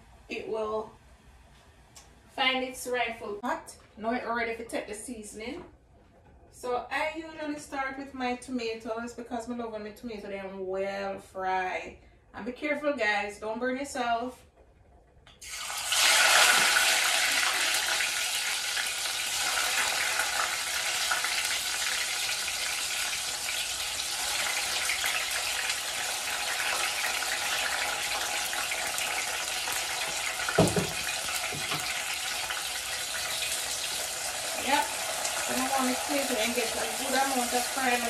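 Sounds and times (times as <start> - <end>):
tomatoes sizzling in oil: 15.4 - 38.0
knock: 30.6 - 31.9.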